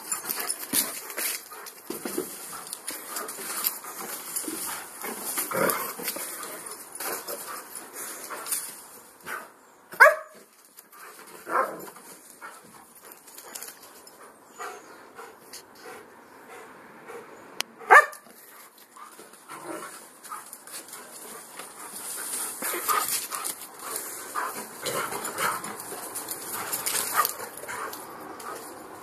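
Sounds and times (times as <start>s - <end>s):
dogs scuffling: 0.0s - 9.4s, 18.3s - 29.0s
dog barking: 10.0s - 10.4s, 17.9s - 18.2s.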